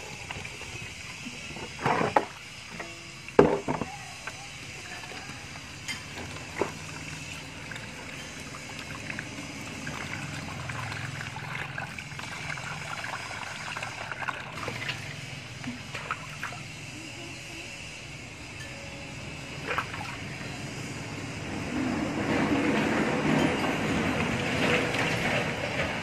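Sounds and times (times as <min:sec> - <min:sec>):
water trickling: 0:06.2 - 0:16.8.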